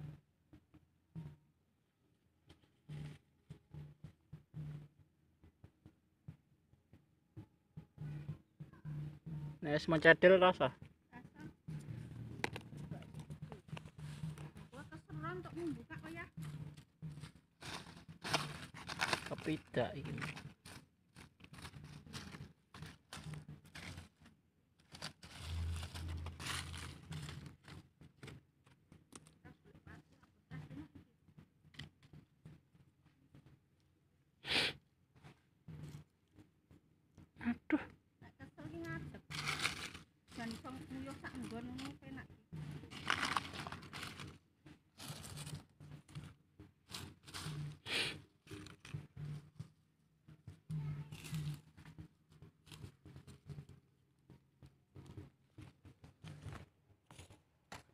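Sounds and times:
dry leaves crunching: 17.6s - 24.1s, 24.8s - 27.8s, 39.3s - 42.0s, 42.9s - 44.4s, 45.0s - 45.6s, 46.9s - 47.8s
dull rustling: 24.8s - 27.8s, 39.3s - 42.0s.

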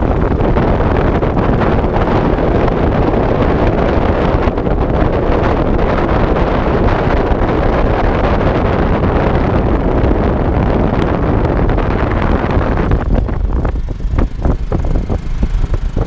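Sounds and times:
motorcycle road and running noise: 0.0s - 16.0s
wind buffeting microphone: 0.0s - 16.0s.

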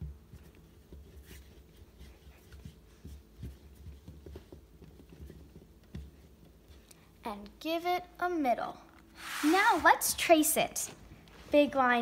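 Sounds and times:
fingers rubbing dough: 0.0s - 6.9s.

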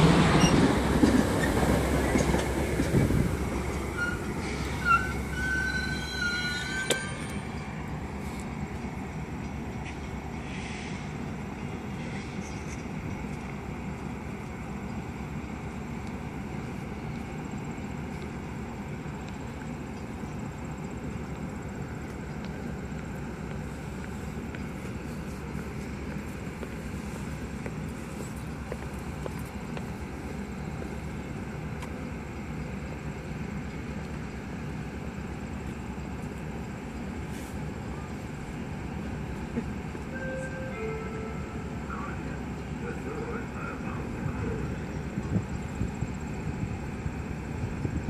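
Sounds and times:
train low rumble: 0.0s - 48.0s.

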